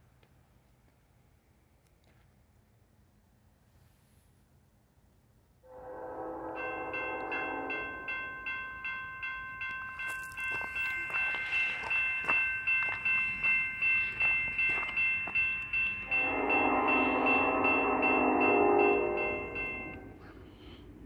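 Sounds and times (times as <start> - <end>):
train horn: 5.6 - 8.1, 16.0 - 20.3
railroad warning bell ringing: 5.8 - 20.4.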